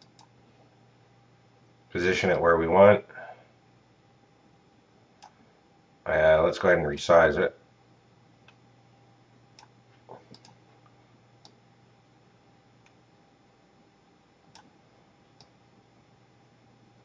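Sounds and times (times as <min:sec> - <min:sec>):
computer mouse clicks: 0:00.0 - 0:00.3, 0:09.6 - 0:10.6, 0:11.4 - 0:11.6, 0:14.5 - 0:14.7
low steady hum: 0:00.0 - 0:17.0.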